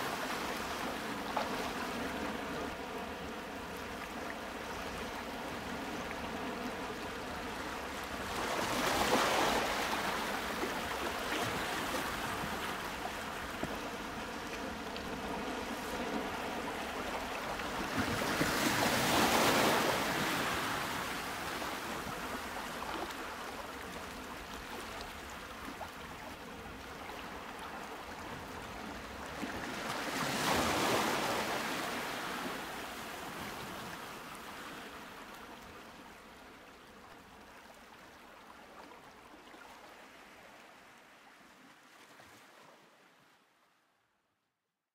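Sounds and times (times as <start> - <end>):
sea waves washing in: 28.8 - 35.2.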